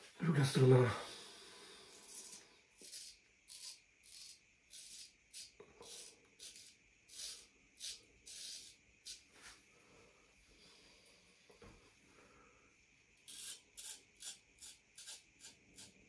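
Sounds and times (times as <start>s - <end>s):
razor scraping stubble: 2.0s - 9.2s, 13.3s - 16.0s.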